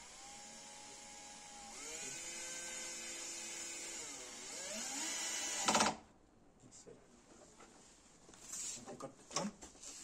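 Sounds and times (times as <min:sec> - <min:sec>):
electric drill drilling into wood: 0:00.0 - 0:06.0.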